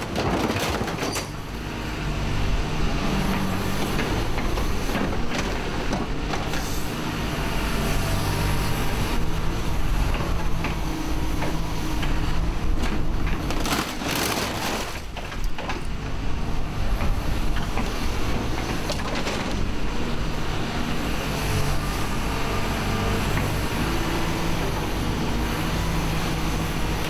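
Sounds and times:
excavator diesel engine running: 0:00.0 - 0:27.0
grab crunching scrap metal: 0:13.3 - 0:15.8.

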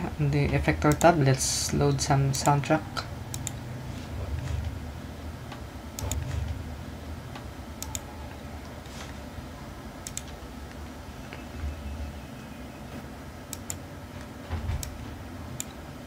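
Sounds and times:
steady low hum: 0:00.0 - 0:16.0
computer mouse clicks: 0:03.3 - 0:03.6, 0:05.5 - 0:06.5, 0:07.3 - 0:08.1, 0:10.0 - 0:10.8, 0:13.5 - 0:13.8, 0:15.6 - 0:15.8.

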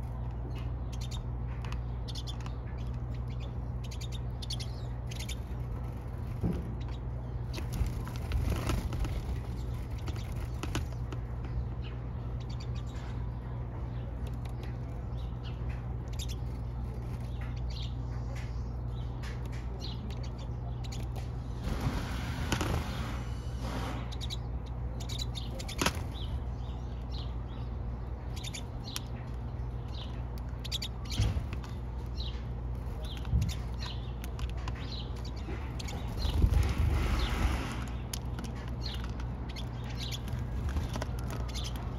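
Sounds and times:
birds chirping: 0:00.0 - 0:41.9.

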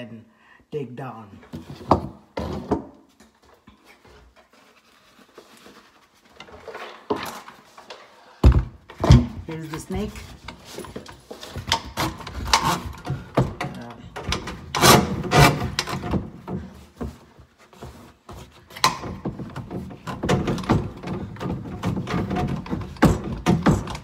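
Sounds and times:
drain snake cable knocking and rubbing: 0:08.4 - 0:24.0.

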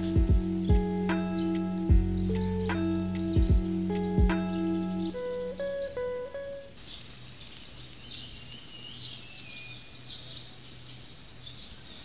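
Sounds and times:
steady low hum: 0:00.0 - 0:09.2
small birds chirping: 0:00.0 - 0:12.0.

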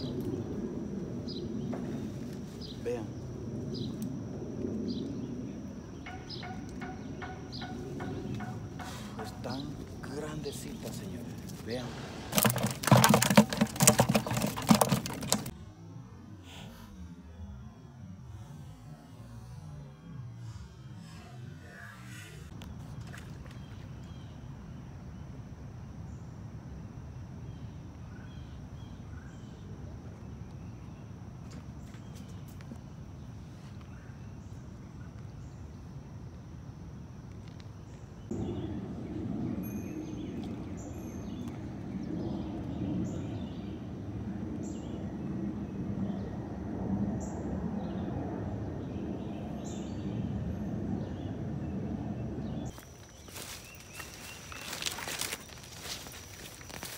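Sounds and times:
insect drone: 0:00.0 - 0:56.9
low rumble: 0:38.3 - 0:56.8.

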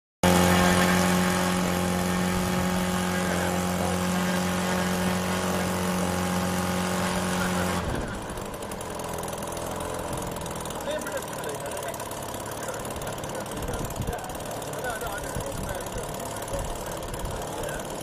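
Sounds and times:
model engine running propeller: 0:00.2 - 0:18.0.

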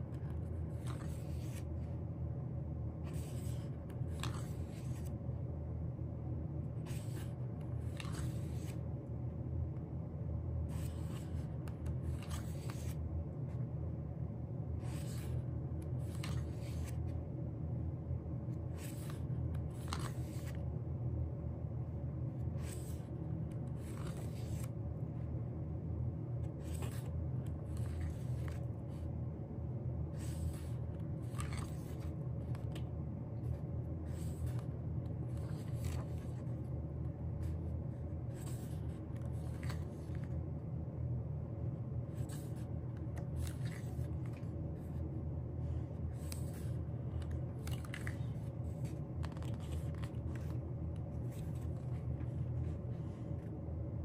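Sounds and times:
steady low hum: 0:00.0 - 0:54.0
paper rustling and scraping: 0:00.1 - 0:01.9, 0:03.0 - 0:05.2, 0:06.8 - 0:08.9, 0:10.7 - 0:13.0, 0:14.8 - 0:17.1, 0:18.6 - 0:20.6, 0:22.4 - 0:24.8, 0:26.5 - 0:29.1, 0:30.2 - 0:36.7, 0:37.4 - 0:40.4, 0:42.1 - 0:45.0, 0:45.6 - 0:53.5.

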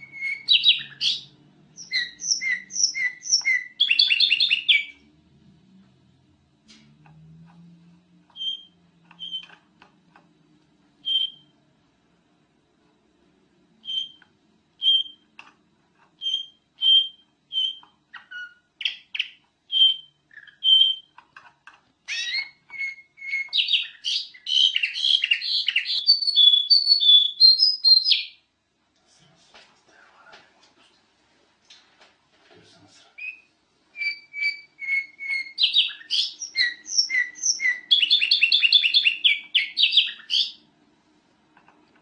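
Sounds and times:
bulbul singing: 0:00.0 - 0:05.1, 0:08.3 - 0:09.7, 0:11.0 - 0:11.6, 0:13.8 - 0:14.2, 0:14.8 - 0:15.4, 0:16.2 - 0:21.2, 0:22.1 - 0:28.5, 0:33.2 - 0:40.6.

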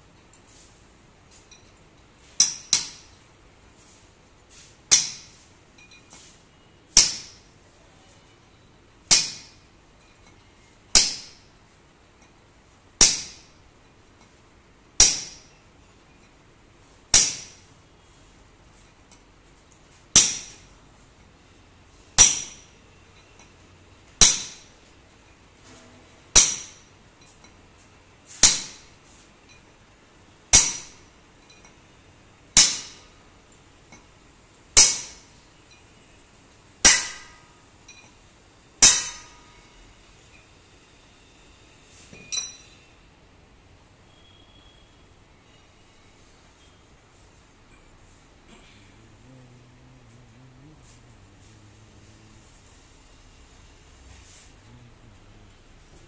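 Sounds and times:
hammer striking steel rod: 0:02.3 - 0:03.2, 0:04.9 - 0:06.3, 0:07.0 - 0:07.5, 0:09.1 - 0:09.6, 0:10.9 - 0:11.5, 0:13.0 - 0:13.6, 0:15.0 - 0:15.6, 0:17.1 - 0:17.7, 0:20.1 - 0:20.7, 0:22.2 - 0:23.3, 0:24.2 - 0:24.8, 0:25.7 - 0:27.3, 0:28.3 - 0:29.6, 0:30.5 - 0:31.8, 0:32.6 - 0:33.2, 0:34.8 - 0:35.8, 0:36.8 - 0:38.2, 0:38.8 - 0:40.4, 0:42.1 - 0:42.8.

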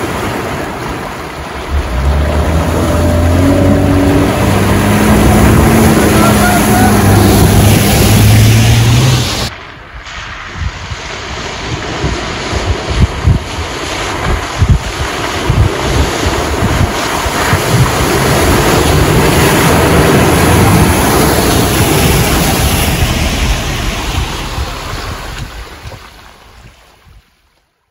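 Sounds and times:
wind buffeting microphone: 0:00.0 - 0:27.3
muddy water sloshing: 0:00.1 - 0:09.5, 0:14.1 - 0:27.0
vehicle engine: 0:01.4 - 0:09.5, 0:14.2 - 0:26.4.

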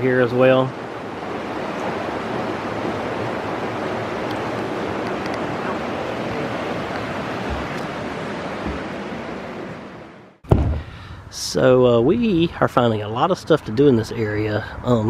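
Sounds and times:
shallow creek flowing: 0:00.0 - 0:10.4.

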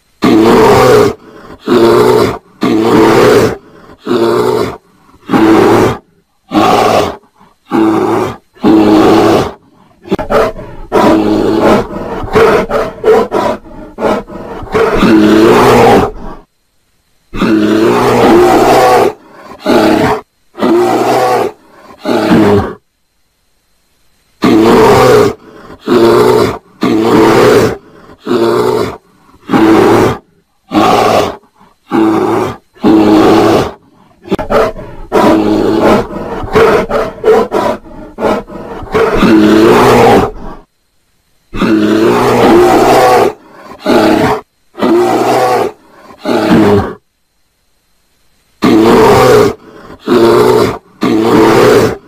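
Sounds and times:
bear roaring: 0:00.2 - 0:16.5, 0:17.3 - 0:22.8, 0:24.4 - 0:40.7, 0:41.5 - 0:47.0, 0:48.6 - 0:52.0.

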